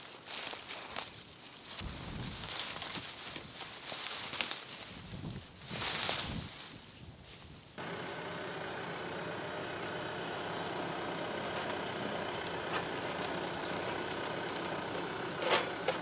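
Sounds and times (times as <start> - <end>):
tractor diesel engine running: 7.8 - 16.0.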